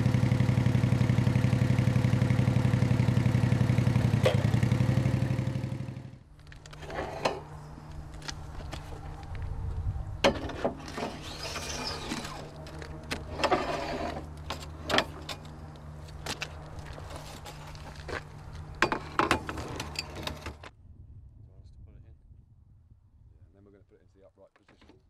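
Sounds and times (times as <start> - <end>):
tubes scraping against rig: 6.7 - 7.9, 10.3 - 20.7
drilling rig engine running: 10.2 - 20.7
metal tubes clanking: 10.2 - 20.7.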